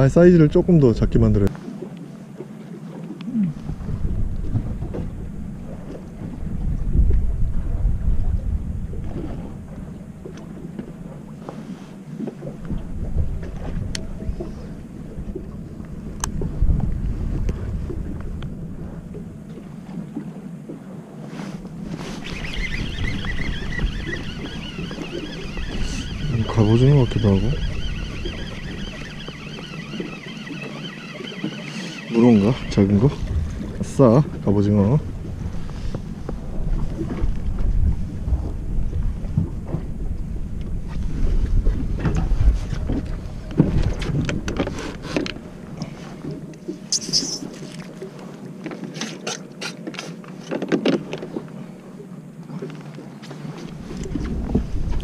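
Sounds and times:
boat rumbling on water: 0.0 - 55.0
wind buffeting microphone: 3.4 - 11.4, 12.1 - 48.2, 53.5 - 55.0
wavering high-pitched tone: 22.1 - 33.2.

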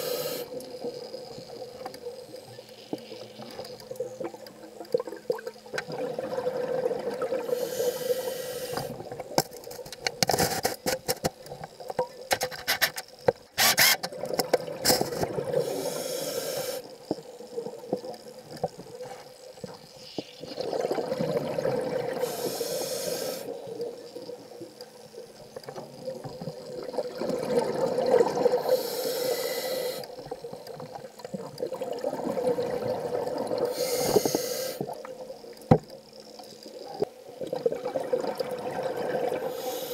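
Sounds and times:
regulator inhale hiss: 0.0 - 0.6, 7.4 - 9.0, 14.9 - 17.0, 22.2 - 23.6, 28.6 - 30.2, 33.6 - 35.0, 39.4 - 39.9
crackling clicks: 0.4 - 6.0, 8.7 - 15.4, 16.8 - 20.6, 23.5 - 27.5, 30.0 - 32.2
exhaled bubbles rushing: 5.8 - 7.5, 20.4 - 22.2, 26.1 - 28.6, 31.6 - 33.7, 37.4 - 39.5.

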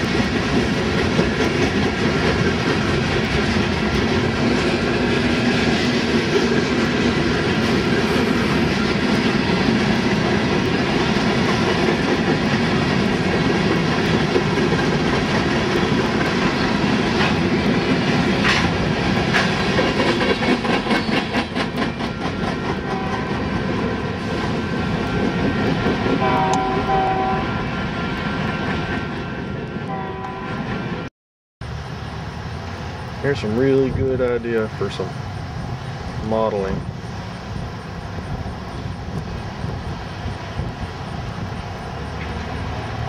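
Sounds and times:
steel wheels clicking over rail joints: 0.0 - 26.8
freight train cars rolling past: 0.0 - 43.0.

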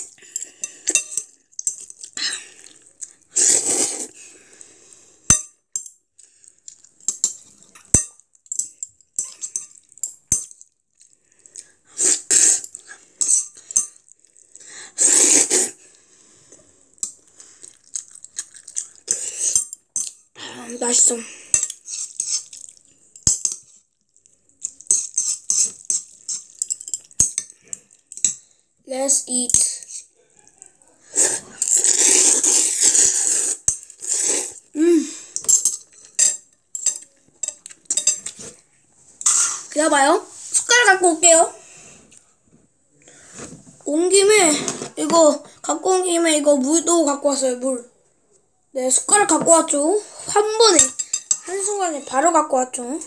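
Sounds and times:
noodles being slurped: 0.0 - 5.1, 9.3 - 19.8, 20.6 - 28.3, 29.6 - 41.3.

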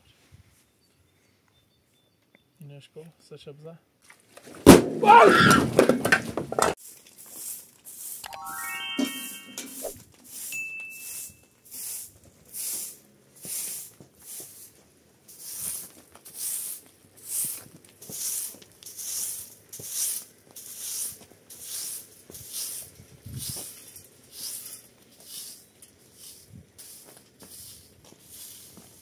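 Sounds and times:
straw broom sweeping dirt: 6.7 - 29.0.

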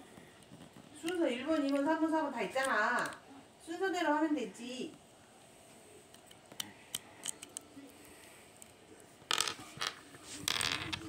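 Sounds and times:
rustling scrapes: 9.6 - 11.0.

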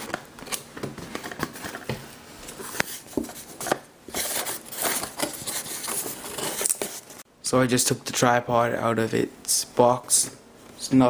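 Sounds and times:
cardboard rustling and scraping: 0.4 - 7.2.

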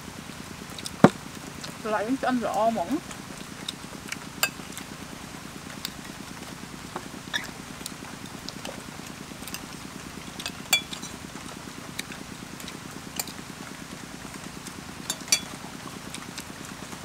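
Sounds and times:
low background noise: 0.0 - 17.0
cutlery clinking on plates: 15.1 - 15.5.

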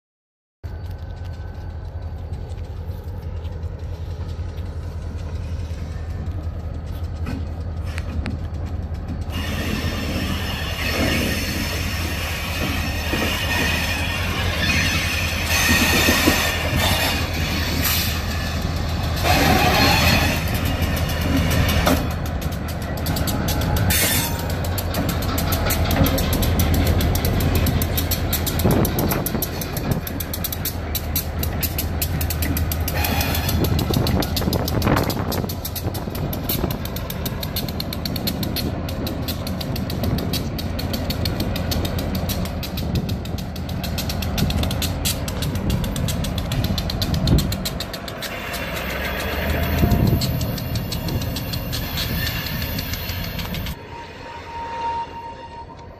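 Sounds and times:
diesel locomotive engine throbbing: 0.6 - 55.9
steel wheels on rails: 0.6 - 55.9
high wheel squeals: 7.8 - 22.2, 22.8 - 31.8, 32.5 - 36.8, 48.0 - 55.9.

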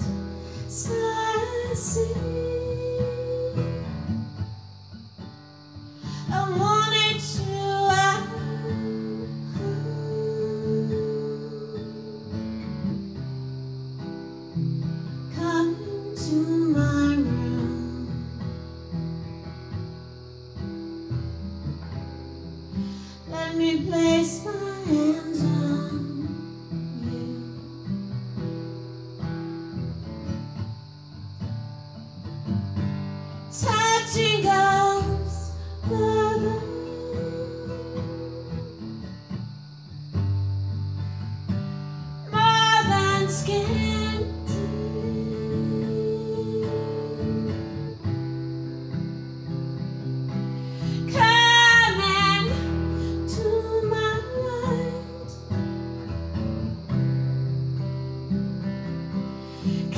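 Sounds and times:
acoustic guitar: 0.0 - 59.9
woman singing with vibrato: 0.6 - 4.0, 6.2 - 12.4, 15.3 - 18.5, 23.3 - 27.7, 33.5 - 38.9, 42.3 - 48.1, 51.1 - 55.4.

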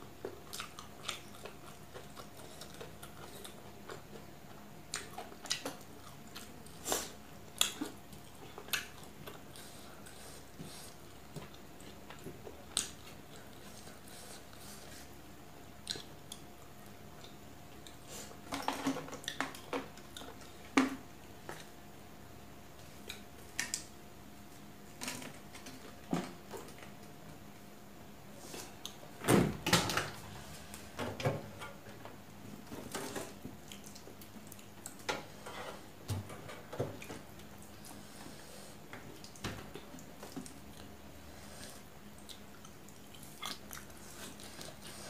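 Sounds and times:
chewing and mouth sounds: 0.2 - 18.0, 33.5 - 35.1, 39.0 - 45.0.

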